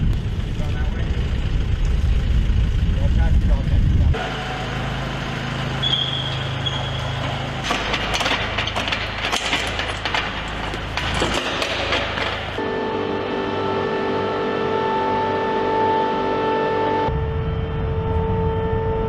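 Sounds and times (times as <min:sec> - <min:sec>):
low machine hum: 0:00.0 - 0:19.0
sharp clicks and knocks: 0:07.2 - 0:12.6.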